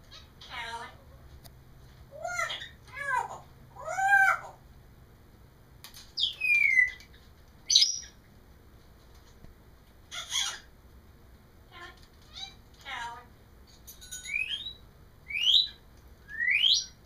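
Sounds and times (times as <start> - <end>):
parrot squawk: 0.1 - 1.0, 2.2 - 4.6, 10.1 - 10.7, 11.8 - 13.2
parrot whistling calls: 6.2 - 7.0, 14.2 - 17.0.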